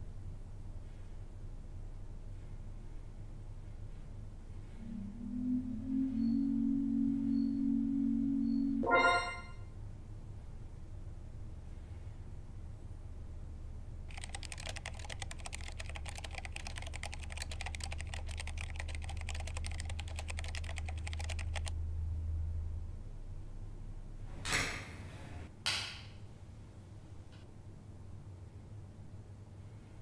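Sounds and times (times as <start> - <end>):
low steady hum: 0.0 - 21.1
rapid keyboard typing: 14.1 - 21.8.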